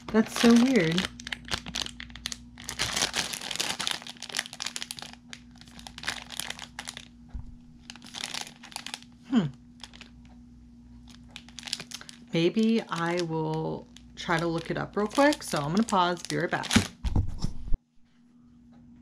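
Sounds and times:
plastic package crinkling: 0.0 - 7.1, 7.8 - 9.2, 9.8 - 10.3, 11.0 - 17.0.

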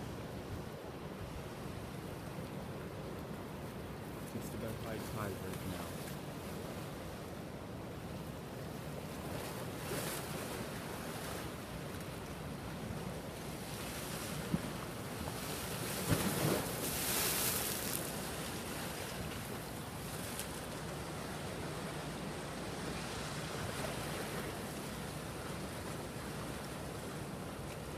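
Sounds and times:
storm surf breaking against seawall: 4.2 - 6.9, 13.5 - 20.6.

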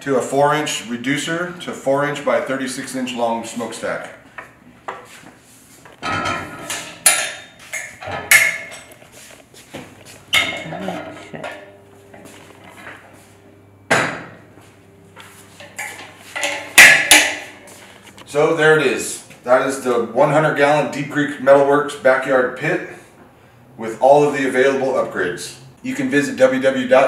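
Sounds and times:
heavy steel clanks and knocks: 6.0 - 8.9.

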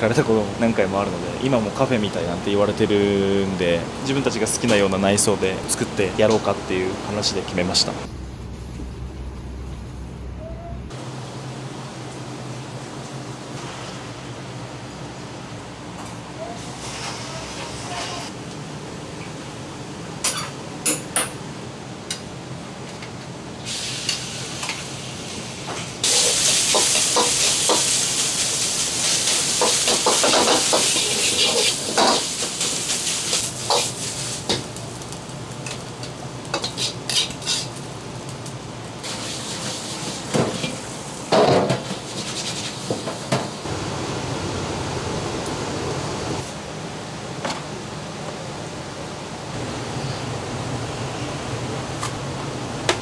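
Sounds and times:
meat sizzling in a wok: 23.6 - 43.7
metal ladle scraping a wok: 36.6 - 37.7.

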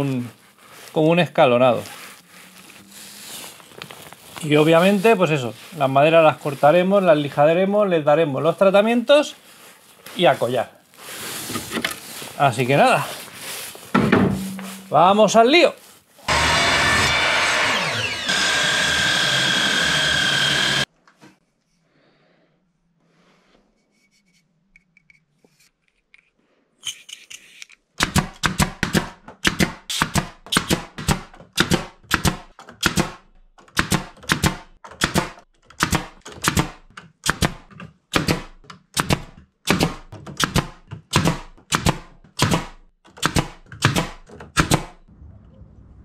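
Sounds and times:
hand tool working wooden boards: 11.0 - 15.2, 16.3 - 20.9.

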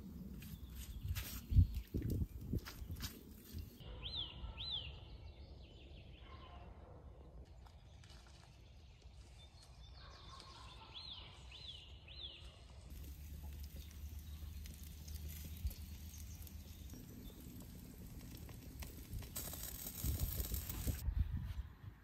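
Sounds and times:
embers crackling under roasting meat: 12.8 - 21.0.

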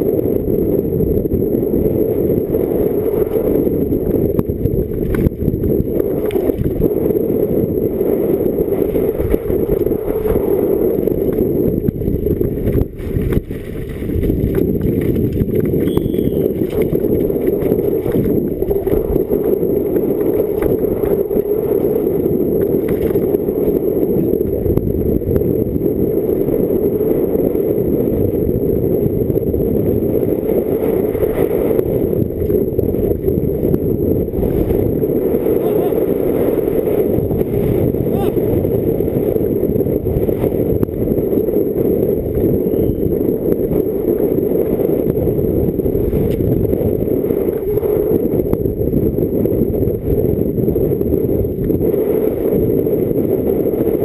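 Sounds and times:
wind rumble on microphone: 0.0 - 54.0
bike rattling over stones: 3.4 - 7.3, 8.2 - 24.6.

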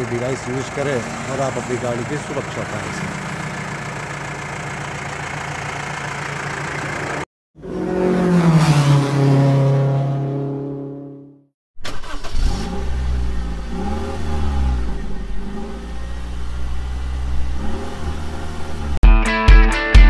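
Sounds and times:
car engine revving: 6.2 - 19.0.

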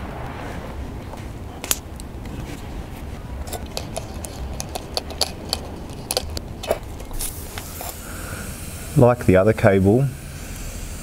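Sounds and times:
metallic clicks of hose fittings: 3.5 - 8.0.

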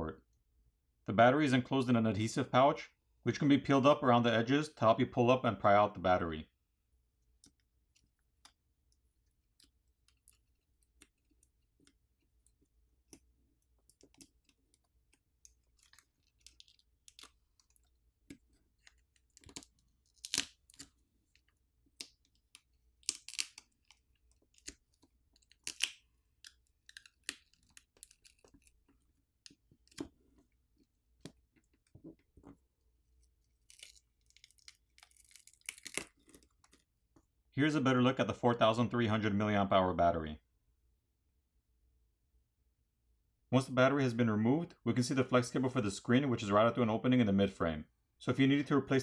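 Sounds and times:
adhesive peeling crackles: 13.8 - 30.4, 33.4 - 36.8.

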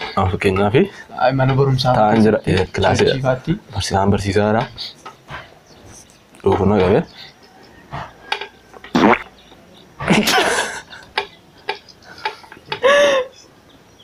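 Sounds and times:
fart sounds: 8.9 - 9.3
people laughing: 10.0 - 13.4.

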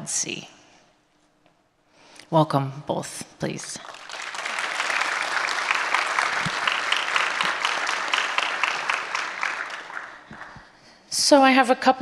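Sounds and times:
audience applauding: 3.8 - 10.7.

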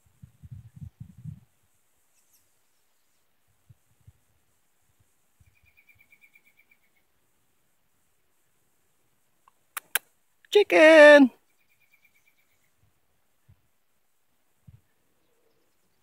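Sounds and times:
distant songbird trill: 2.0 - 3.3, 5.3 - 7.2, 11.4 - 12.9
faint high chirp: 5.4 - 7.0.

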